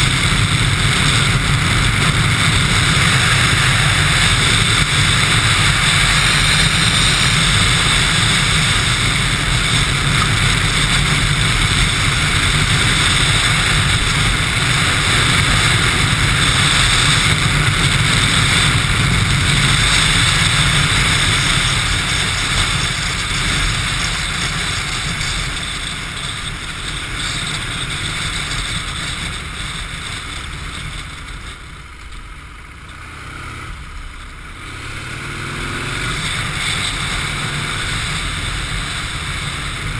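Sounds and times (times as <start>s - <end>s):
wind rushing on microphone: 0.0s - 31.3s
motorcycle engine running: 0.0s - 39.9s.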